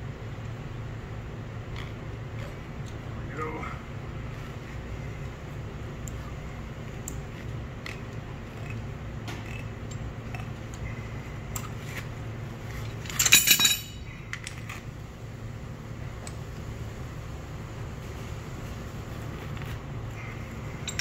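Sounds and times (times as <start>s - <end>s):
steady low hum: 0.0s - 21.0s
metal tool clattering on floor: 13.1s - 14.1s.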